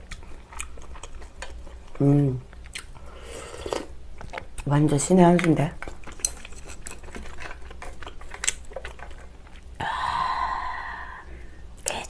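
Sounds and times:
chewing and chopstick clicks: 5.3s - 9.7s.

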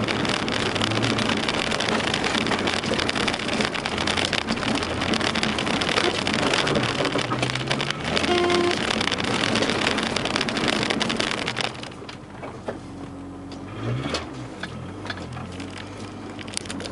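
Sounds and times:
debris pattering on car underside: 0.0s - 12.7s
low car engine with rev: 0.0s - 16.9s
tyre and road noise: 0.0s - 16.9s.

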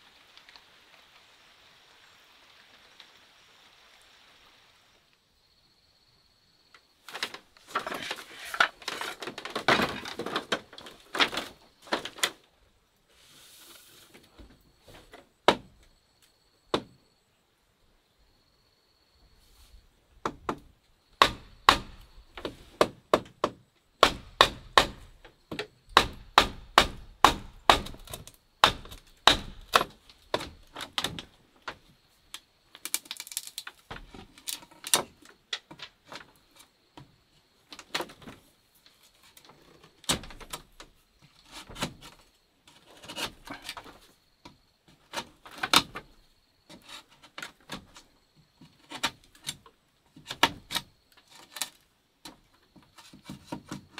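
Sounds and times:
rustling: 7.0s - 15.3s
knife chopping wood: 21.2s - 30.5s.

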